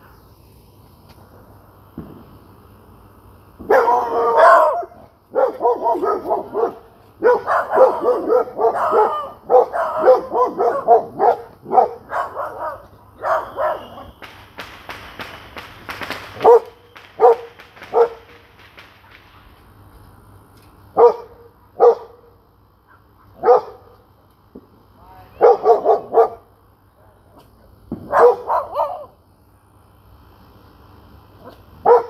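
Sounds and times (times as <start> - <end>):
dog barking: 3.6 - 14.1, 16.4 - 18.3, 21.0 - 24.0, 25.4 - 26.5, 28.1 - 29.1, 31.4 - 32.0.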